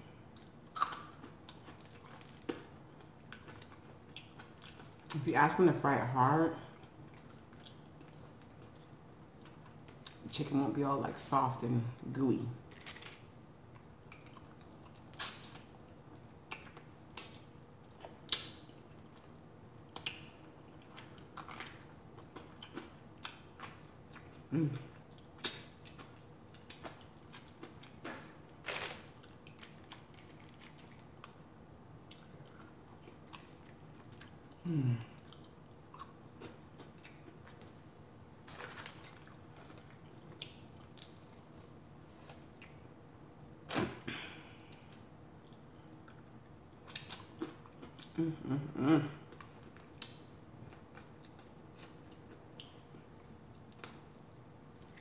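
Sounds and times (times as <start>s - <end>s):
chewing crispy food: 0.3s - 5.6s, 6.6s - 10.4s, 12.6s - 31.4s, 32.0s - 42.9s, 44.7s - 55.0s
person humming: 24.5s - 24.9s, 34.6s - 35.2s, 48.2s - 49.2s.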